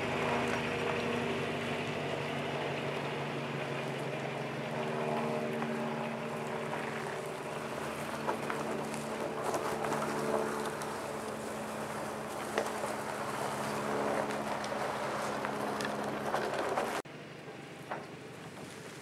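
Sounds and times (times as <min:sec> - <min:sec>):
log scraping over gravel: 0:06.6 - 0:17.0
truck engine under load: 0:06.6 - 0:19.0.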